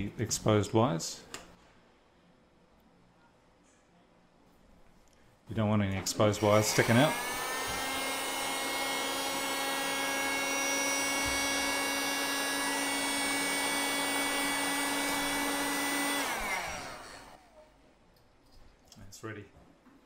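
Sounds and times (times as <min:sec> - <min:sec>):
hot-air blower fan whining: 0:06.4 - 0:17.5.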